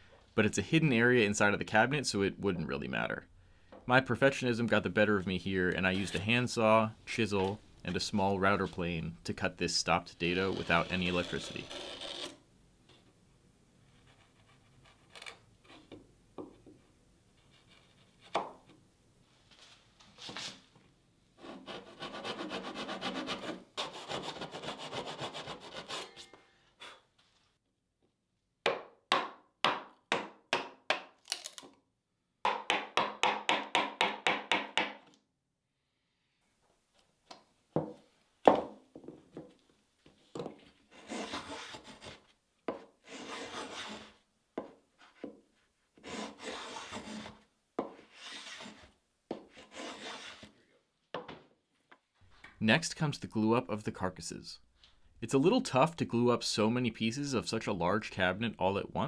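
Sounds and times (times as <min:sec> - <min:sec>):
handsaw sawing: 0:21.4 - 0:26.1, 0:40.9 - 0:42.2, 0:43.0 - 0:44.2, 0:46.0 - 0:47.4, 0:48.0 - 0:48.8, 0:49.5 - 0:50.5.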